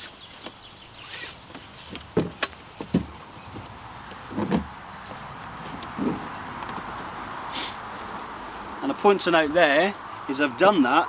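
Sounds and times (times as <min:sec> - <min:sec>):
short scrape: 0:01.0 - 0:01.5
strap pulled through buckle: 0:01.0 - 0:01.6
sharp clicks and knocks: 0:01.5 - 0:07.1.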